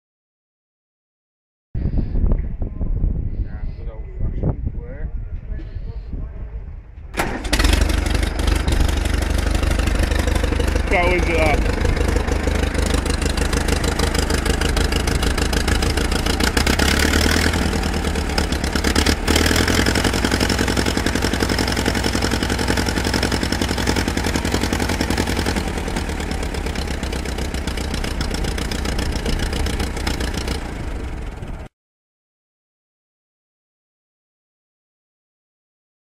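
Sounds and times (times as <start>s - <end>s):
aircraft tug engine idling: 7.2s - 31.7s.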